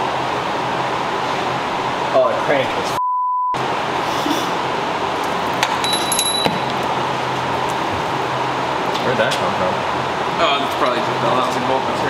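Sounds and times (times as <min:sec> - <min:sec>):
steady background hum: 0:00.0 - 0:03.0, 0:03.6 - 0:12.0
metal engine parts clinking: 0:05.7 - 0:06.8.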